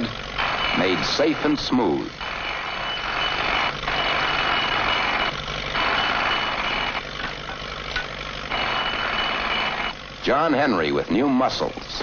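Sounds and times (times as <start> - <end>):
machinery running with whine: 0.0 - 12.0.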